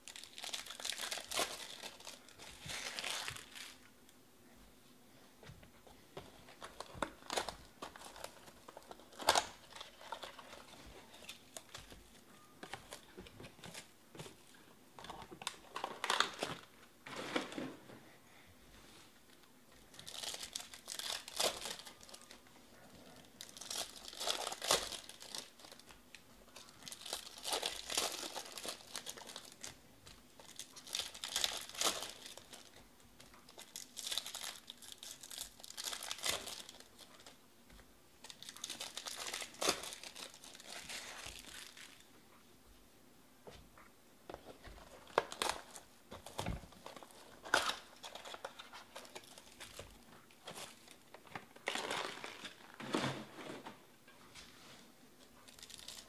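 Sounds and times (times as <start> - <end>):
foil wrappers crinkling and tearing: 0.0 - 3.8, 19.9 - 22.4, 23.2 - 37.4, 38.2 - 42.0, 44.8 - 51.0, 51.6 - 52.9, 55.5 - 56.0.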